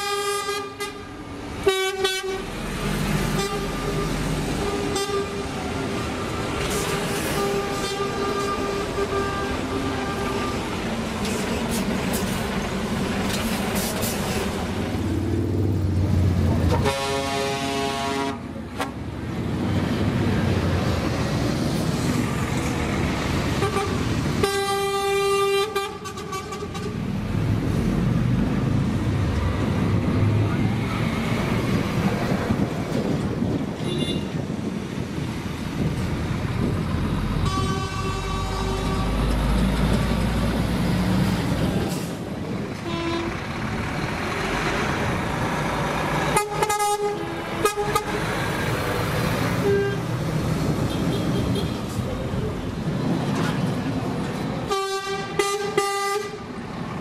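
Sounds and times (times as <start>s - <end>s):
truck air horn blasts: 0.0s - 2.6s, 3.2s - 5.6s, 6.7s - 10.8s, 16.7s - 19.0s, 23.6s - 27.0s, 33.8s - 34.3s, 37.4s - 39.2s, 42.8s - 43.4s, 46.3s - 48.2s, 49.6s - 50.1s, 54.7s - 56.5s
diesel truck engines rumbling: 0.0s - 57.0s.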